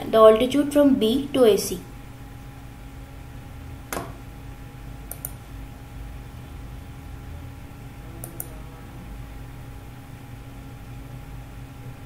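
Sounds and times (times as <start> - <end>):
steady low hum: 0.0 - 12.0
computer mouse clicking: 5.1 - 5.4, 8.2 - 8.5.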